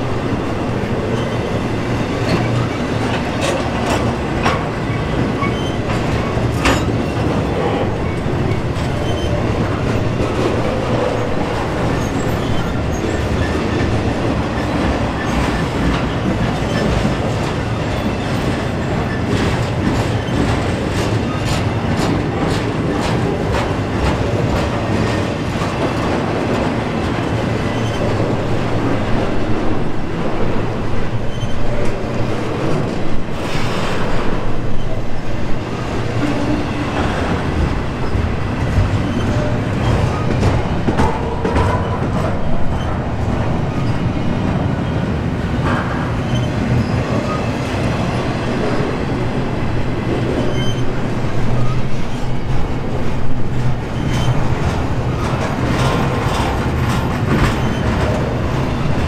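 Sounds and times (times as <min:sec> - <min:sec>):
train cars rolling past: 0:00.0 - 0:59.0
wheels clicking over rail joints: 0:53.3 - 0:59.0.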